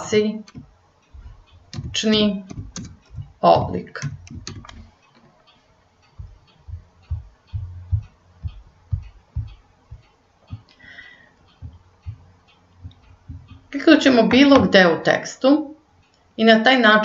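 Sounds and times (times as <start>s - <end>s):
soft low thumps: 0.4s - 4.9s, 6.0s - 15.0s
faint ticks: 4.2s - 13.8s, 16.0s - 16.3s.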